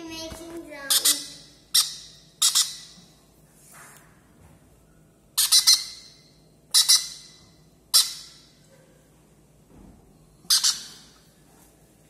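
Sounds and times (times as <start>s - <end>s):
parrot chick squawking: 0.8s - 3.0s, 5.4s - 8.5s, 10.5s - 11.2s.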